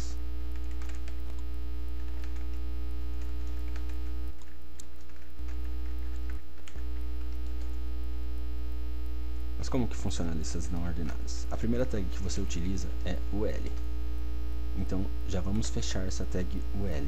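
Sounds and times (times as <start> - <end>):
electrical mains hum: 0.0 - 17.0
keyboard clicks: 0.5 - 2.6, 3.2 - 7.8.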